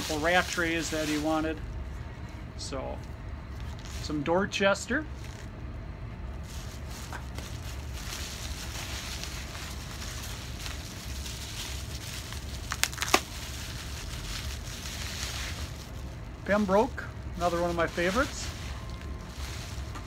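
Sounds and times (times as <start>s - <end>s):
bubble wrap crinkling: 0.0s - 1.6s, 3.0s - 4.3s, 5.0s - 5.6s, 6.2s - 20.0s.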